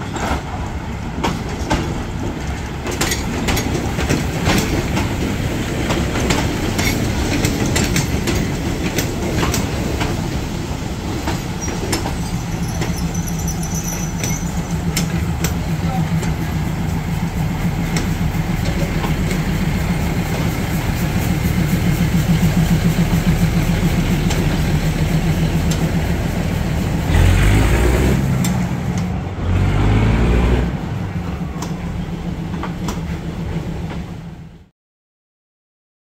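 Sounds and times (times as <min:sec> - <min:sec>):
engine idling and revving: 0:21.9 - 0:32.2.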